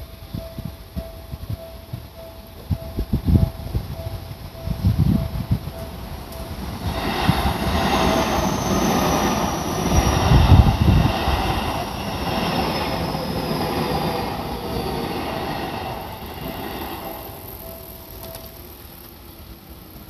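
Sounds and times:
high train whine: 0.0 - 20.0
train wheels rumbling on rails: 0.0 - 20.0.

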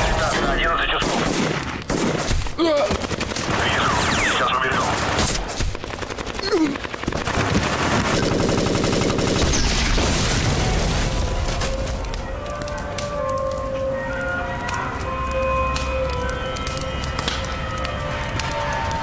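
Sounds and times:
machine gun firing bursts: 0.0 - 10.0
gunshots: 0.0 - 11.8.

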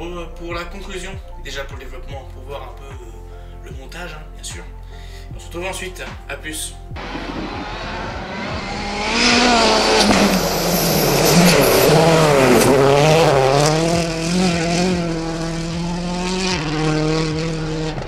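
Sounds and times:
rally car engine revving: 7.0 - 18.0.

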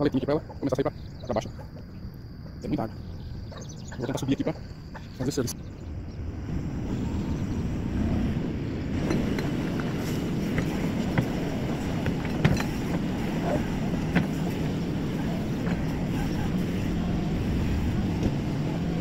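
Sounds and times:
diesel engine running: 6.2 - 19.0.

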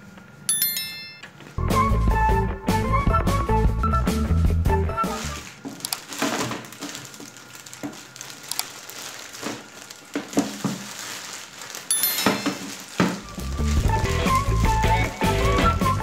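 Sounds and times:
short high ringing: 0.5 - 1.4
music: 1.6 - 5.5, 13.2 - 16.0
plastic bag crinkling: 5.2 - 15.2.

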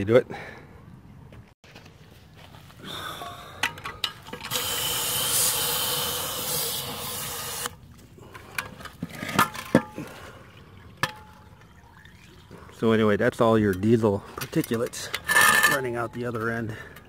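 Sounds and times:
hose nozzle spraying water: 4.4 - 7.8.

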